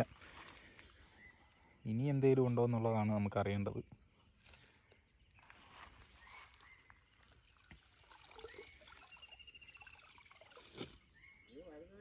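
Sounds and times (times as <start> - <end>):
water trickling and dripping: 6.5 - 10.9.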